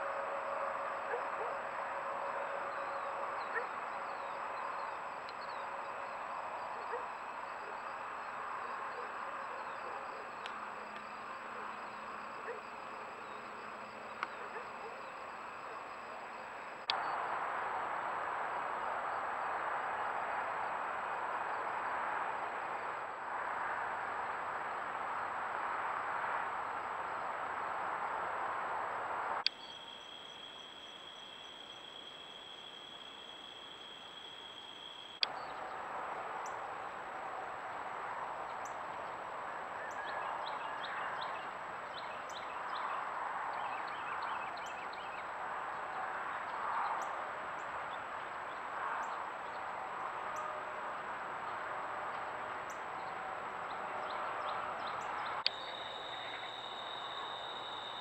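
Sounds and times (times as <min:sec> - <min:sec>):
crickets and insects chirping: 0:00.0 - 0:58.0
faint ticks: 0:10.4 - 0:11.1
high-pitched insect trill: 0:29.5 - 0:35.2, 0:55.5 - 0:58.0.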